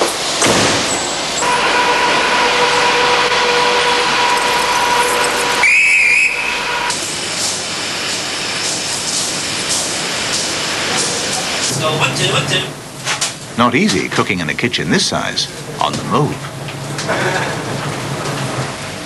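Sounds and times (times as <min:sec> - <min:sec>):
train hiss with high whine: 0:00.0 - 0:12.8
short warbling whistle: 0:04.7 - 0:06.9.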